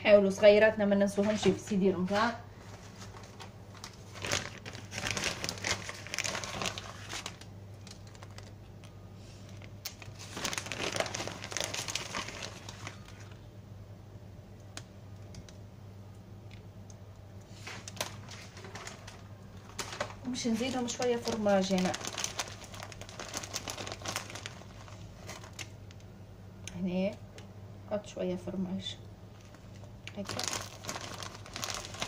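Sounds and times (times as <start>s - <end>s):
low steady hum: 0.0s - 32.0s
plastic bag crinkling: 1.2s - 13.4s, 17.5s - 26.1s, 29.3s - 32.0s.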